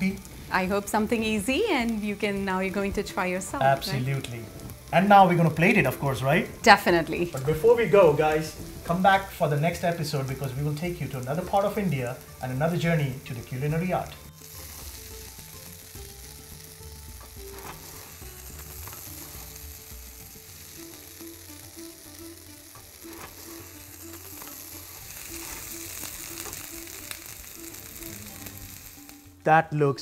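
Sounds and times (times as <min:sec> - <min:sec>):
food sizzling in a frying pan: 0:00.0 - 0:29.5.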